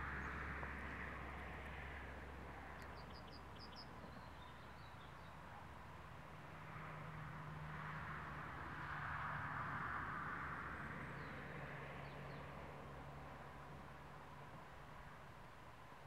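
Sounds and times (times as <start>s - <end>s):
songbird chirping: 2.7s - 5.6s
faint outdoor hiss: 11.8s - 16.0s.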